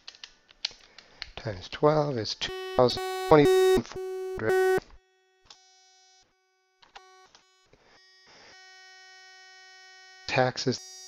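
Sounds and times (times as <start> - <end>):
electronic buzzing tone: 2.5 - 6.2.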